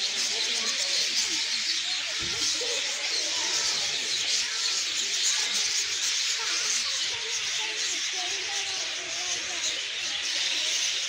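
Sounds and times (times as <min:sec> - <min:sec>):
faint indistinct voices: 0:00.0 - 0:11.0.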